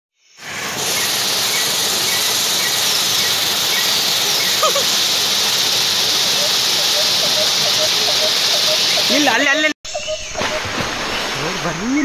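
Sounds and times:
waterfall pouring into pool: 0:00.4 - 0:09.4
bird chirps: 0:06.2 - 0:10.7.

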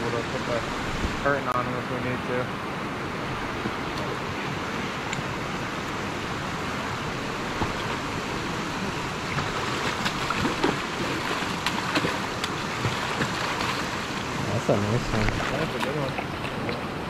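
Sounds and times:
river current rushing: 0:00.0 - 0:17.0
fish splashing in water: 0:09.1 - 0:14.4.

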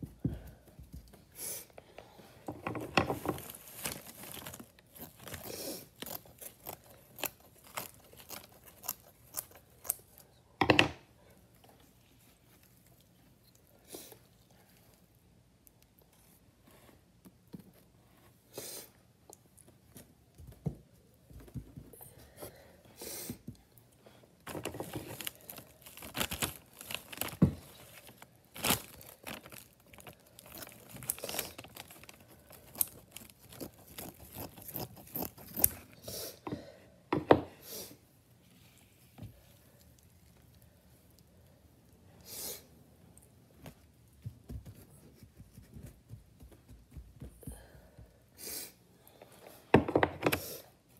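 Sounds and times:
plaster cloth rustling and tearing: 0:03.1 - 0:10.0, 0:24.4 - 0:36.0.

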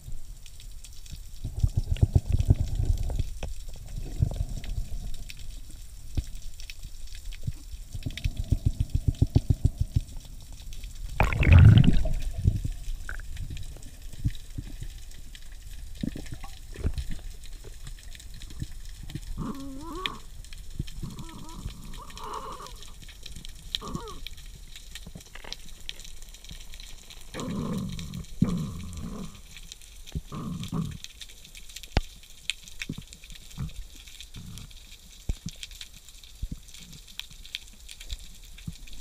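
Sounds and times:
underwater rush: 0:01.2 - 0:30.0
rapid low underwater pulses: 0:07.5 - 0:22.8.

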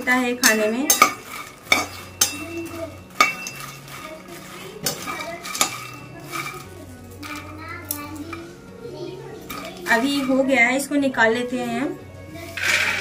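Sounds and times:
spatula scraping a pan: 0:00.0 - 0:13.0
sharp metal clinks: 0:00.4 - 0:03.9.

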